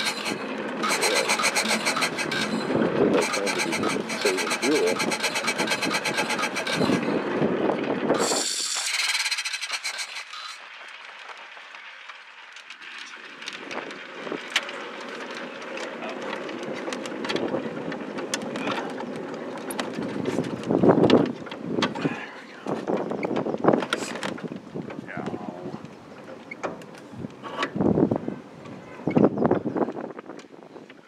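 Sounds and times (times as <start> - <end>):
scattered clicks: 0.0 - 7.0
car rattle and road noise: 0.0 - 12.4.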